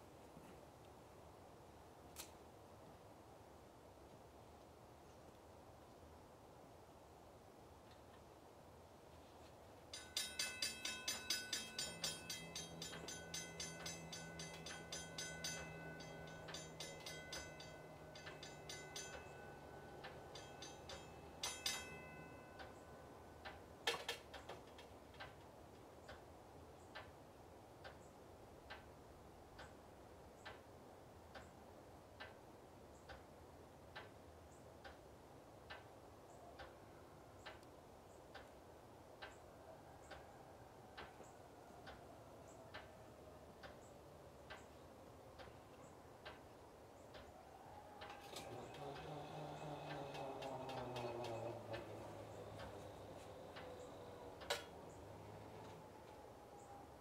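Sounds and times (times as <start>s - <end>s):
crossing gate mechanism hum: 9.7s - 29.0s, 43.5s - 57.0s
railroad crossing bell ringing: 9.9s - 24.1s, 48.0s - 57.0s.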